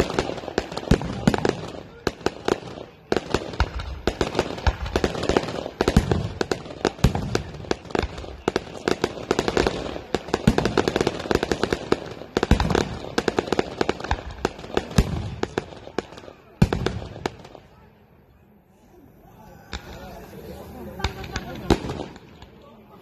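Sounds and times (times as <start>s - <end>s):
deep firework booms: 0.0s - 16.0s, 16.6s - 17.6s
fireworks cracking and popping: 0.0s - 17.8s, 19.6s - 23.0s.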